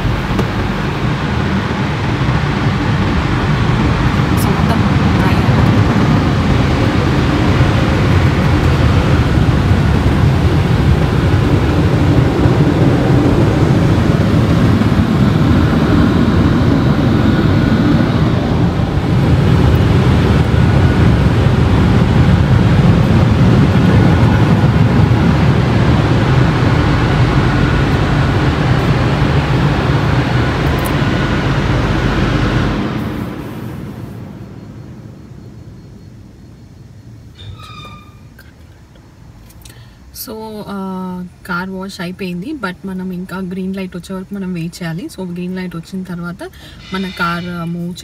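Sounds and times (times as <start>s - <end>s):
car wash air blowers: 0.0s - 34.3s.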